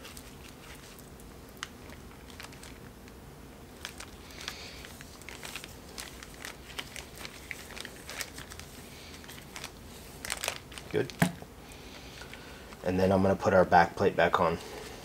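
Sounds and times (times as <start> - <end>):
small clicks and crinkles: 0.0 - 3.2, 3.8 - 11.4.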